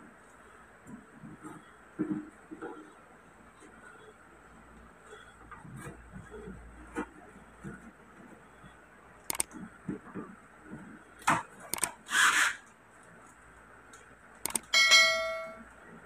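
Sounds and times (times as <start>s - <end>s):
scraping rasp: 12.0s - 12.6s
ringing metal clang: 14.7s - 15.7s.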